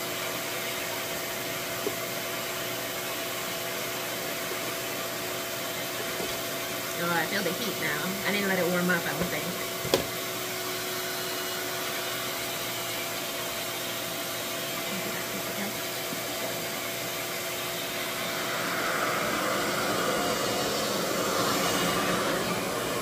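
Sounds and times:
blow dryer motor whirring: 0.0 - 23.0
faint steady hum: 14.8 - 23.0.

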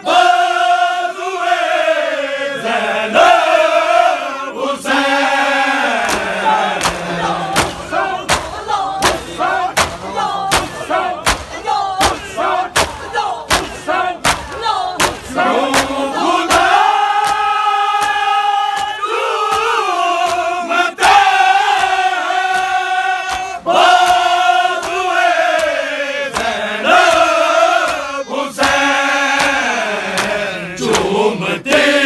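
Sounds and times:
crowd shouting chants: 0.0 - 32.0
crowd slapping chests in unison: 0.0 - 32.0
men's chorus chanting: 0.0 - 32.0.

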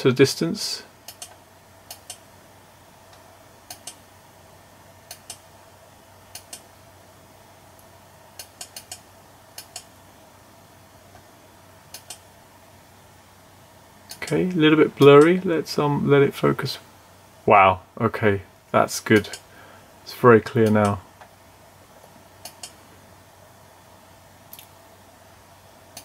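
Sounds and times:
faint electrical hum: 0.0 - 26.0
computer mouse clicks: 1.0 - 2.2, 3.1 - 4.0, 5.1 - 5.4, 6.3 - 6.7, 7.8 - 9.0, 9.6 - 9.9, 11.9 - 12.2, 14.1 - 14.4, 22.4 - 22.8.

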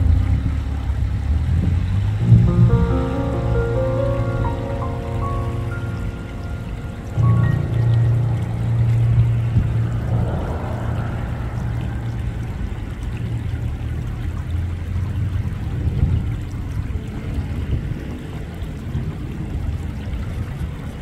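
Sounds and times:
steady low rumble: 0.0 - 21.0
water lapping and sloshing: 5.9 - 21.0.

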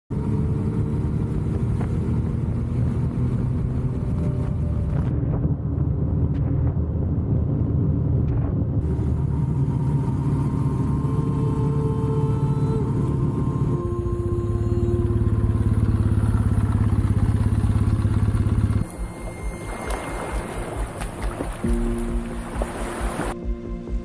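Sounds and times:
motorcycle engine running: 0.1 - 7.0, 8.1 - 24.0.

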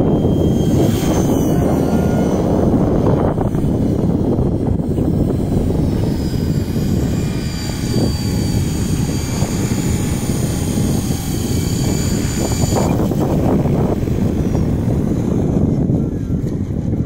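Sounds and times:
electric motor whine: 0.0 - 17.0
helicopter rotor rushing: 0.0 - 17.0.

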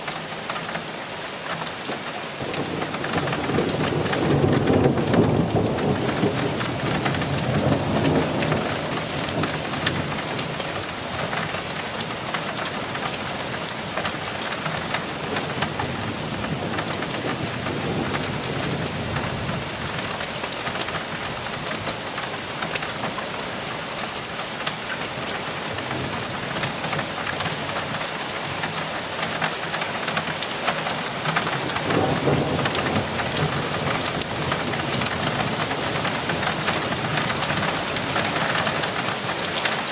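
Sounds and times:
steady rain falling: 0.0 - 39.9
thunder rumbling low: 2.6 - 10.5.

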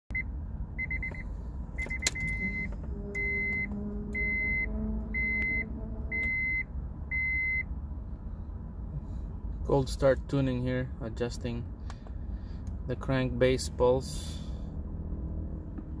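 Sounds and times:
car warning chime beeping: 0.1 - 7.7.

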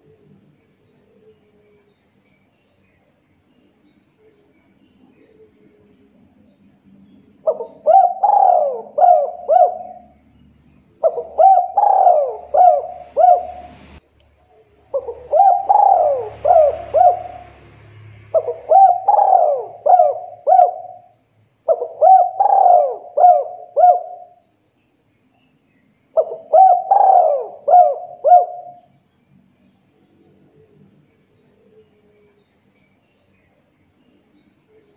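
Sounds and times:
dove cooing: 7.4 - 10.2, 10.8 - 14.0, 14.8 - 21.1, 21.7 - 24.4, 26.2 - 29.0.

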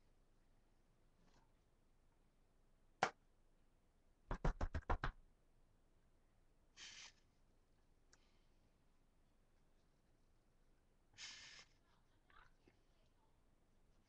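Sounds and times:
short hiss: 6.8 - 7.2, 11.2 - 11.8.

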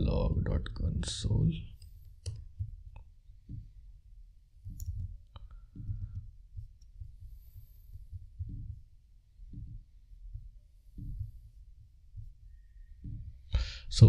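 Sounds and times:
soft low thumps: 0.0 - 14.0.

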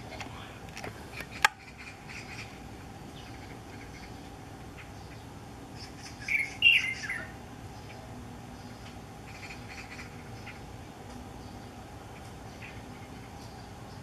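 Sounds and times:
bird singing quick notes: 5.8 - 8.0.

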